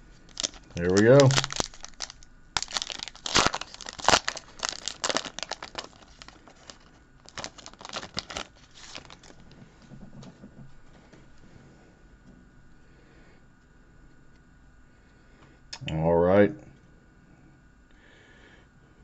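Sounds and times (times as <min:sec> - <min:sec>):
foil wrapper tearing and crinkling: 0:00.3 - 0:09.6.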